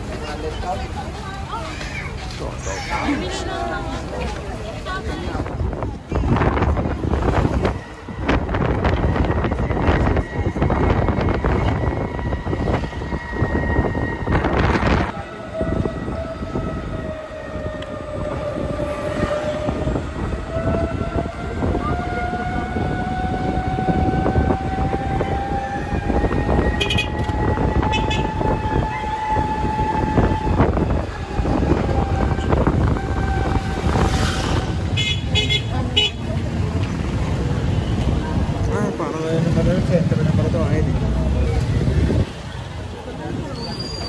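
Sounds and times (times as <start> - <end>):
tyres and wind rumbling: 0.0 - 44.0
vehicle drive whine: 5.7 - 35.0.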